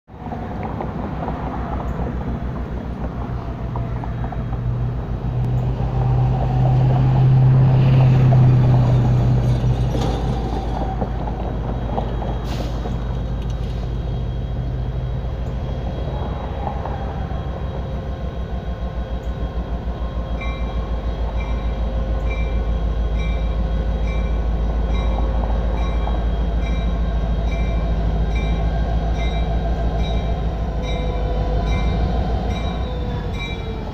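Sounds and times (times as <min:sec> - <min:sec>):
diesel locomotive engine throbbing: 0:00.1 - 0:33.9
locomotive bell ringing: 0:20.3 - 0:33.9.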